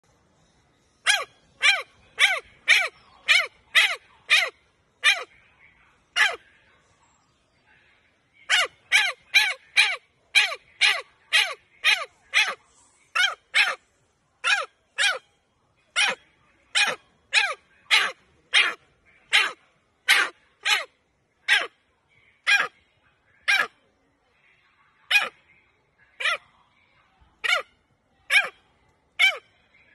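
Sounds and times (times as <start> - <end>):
macaque calling: 1.0 - 5.3, 6.1 - 6.4, 8.5 - 13.8, 14.4 - 15.2, 15.9 - 20.9, 21.5 - 21.7, 22.4 - 22.8, 23.4 - 23.8, 25.1 - 25.4, 26.2 - 26.4, 27.4 - 27.7, 28.3 - 28.6, 29.2 - 29.5.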